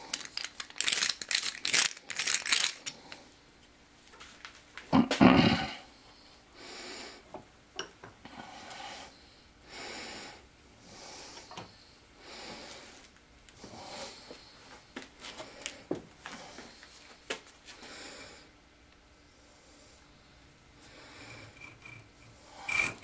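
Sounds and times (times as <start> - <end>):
file rasping on metal pipe: 21.2 - 23.0.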